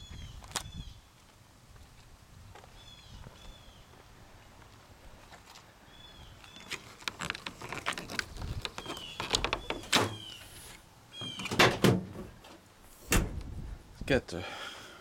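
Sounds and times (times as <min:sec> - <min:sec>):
tailgate and camper shell knocks: 0:11.2 - 0:12.4.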